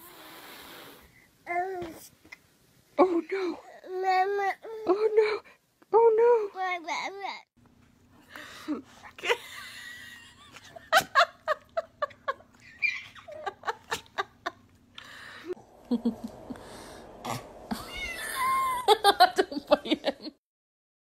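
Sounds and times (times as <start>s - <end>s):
small child laughing: 10.5s - 14.6s, 17.7s - 20.3s.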